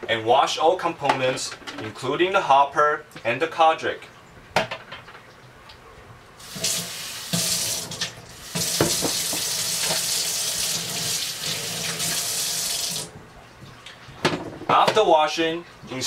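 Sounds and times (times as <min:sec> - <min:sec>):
tap water running into sink: 0:06.4 - 0:13.2.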